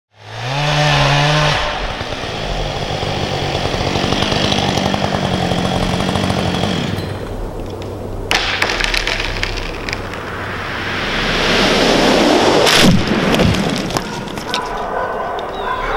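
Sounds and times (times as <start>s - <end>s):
chainsaw running: 0.2s - 7.5s
wood cracking: 1.1s - 10.4s, 12.6s - 15.6s.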